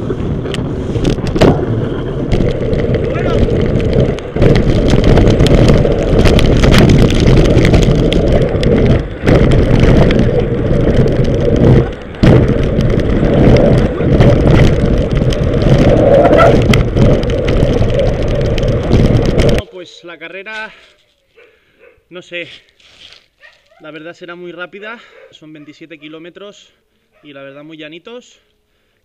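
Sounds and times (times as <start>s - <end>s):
bike rattles and knocks: 0.0s - 19.6s
wind buffeting microphone: 0.0s - 19.6s.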